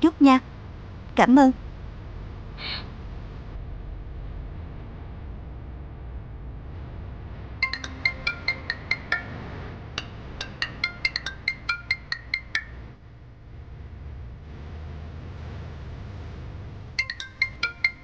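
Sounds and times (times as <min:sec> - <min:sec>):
marimba ringtone melody: 0:07.6 - 0:12.9, 0:17.0 - 0:18.0.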